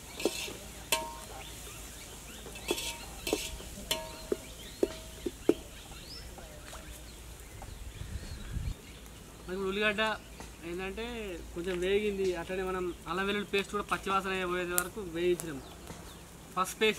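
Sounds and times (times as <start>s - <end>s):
metal ladle scraping a pot: 0.0s - 5.8s
onions frying: 0.0s - 8.0s, 8.7s - 16.9s.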